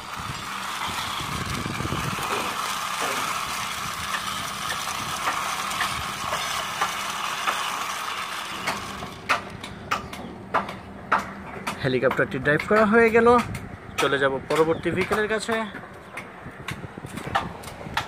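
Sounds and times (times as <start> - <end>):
toy wheels and gears whirring: 0.0 - 10.3.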